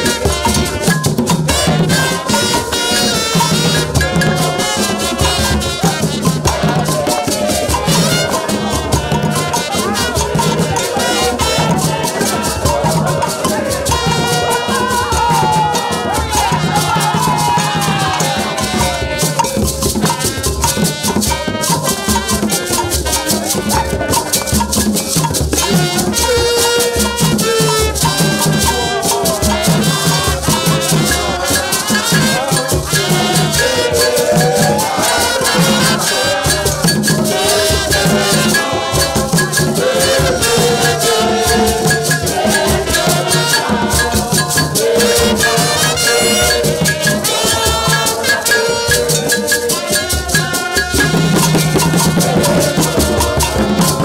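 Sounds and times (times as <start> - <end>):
hand drums playing fast rhythm: 0.0 - 54.0
stick-beaten drum: 0.0 - 54.0
trumpets playing melody: 0.0 - 54.0
shaken rattle: 19.2 - 54.0.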